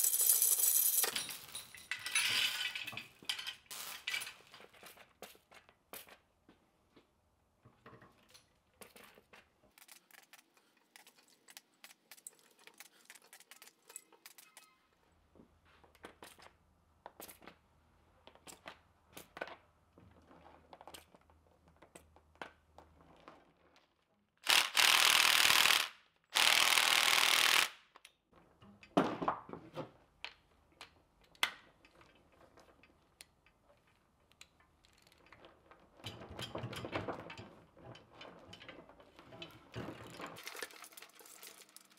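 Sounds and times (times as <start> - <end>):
chain links clinking: 0.0 - 3.0.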